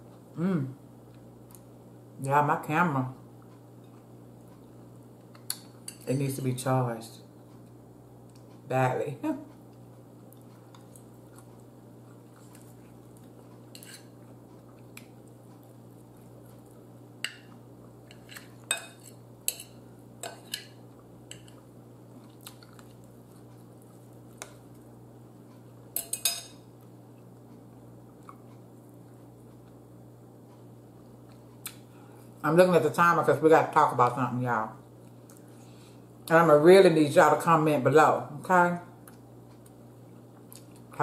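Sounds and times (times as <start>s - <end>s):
fork and spoon clinking on bowl: 26.0s - 26.6s.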